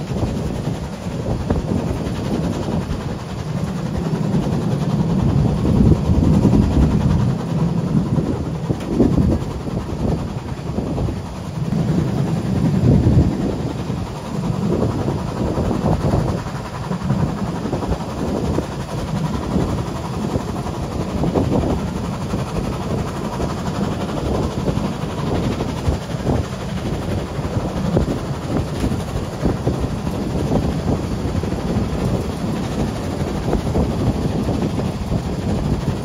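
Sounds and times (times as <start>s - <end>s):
steam train rumbling on rails: 0.0s - 36.0s.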